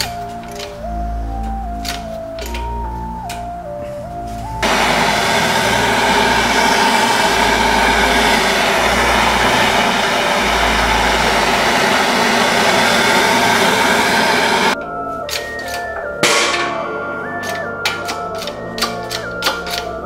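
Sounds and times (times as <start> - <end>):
gas torch hissing: 4.6 - 14.8.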